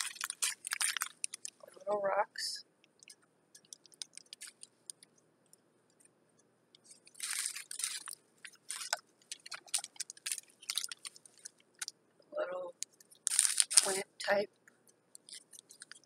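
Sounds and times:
plastic bag crinkling: 0.0 - 1.8, 3.0 - 5.0, 7.0 - 11.9, 13.1 - 14.1, 15.2 - 16.0.

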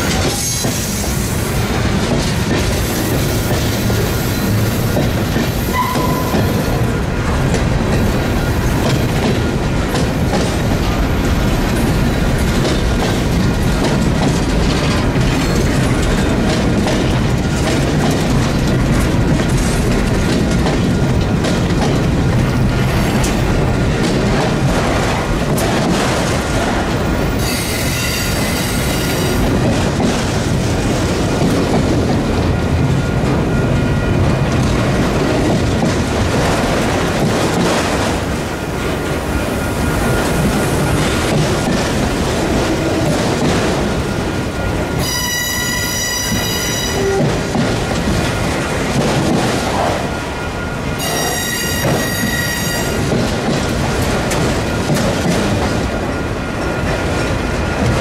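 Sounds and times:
freight train wheels rumbling on rail: 0.0 - 58.0
high wheel squeal: 27.4 - 29.4, 45.0 - 47.2, 51.0 - 53.1.

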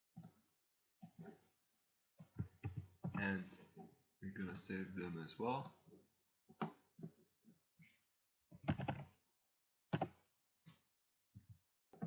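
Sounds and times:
keyboard keys and mouse clicking: 2.2 - 3.4, 8.5 - 9.2, 9.9 - 10.3.

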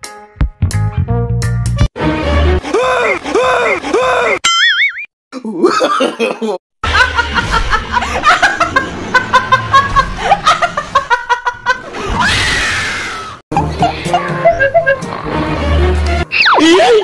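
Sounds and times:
woman laughing hard: 5.6 - 12.1, 13.5 - 15.1.

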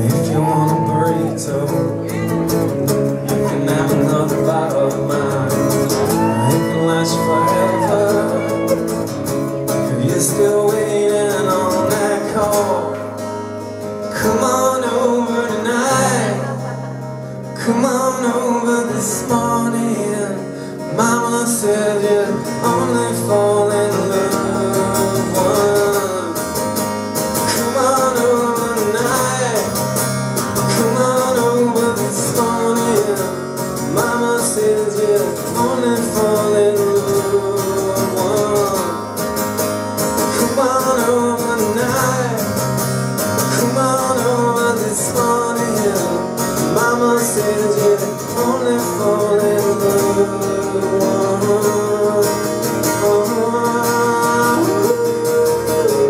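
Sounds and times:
man singing: 0.0 - 56.0
strummed acoustic guitar: 0.0 - 56.0.

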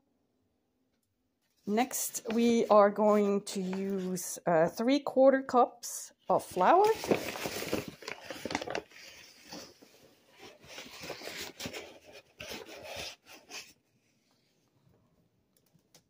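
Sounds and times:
paper bag rustling: 6.4 - 13.7.

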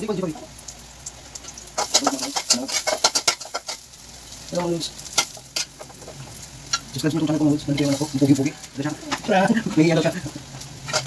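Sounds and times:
utensil knocking cooking pot: 1.8 - 3.8.

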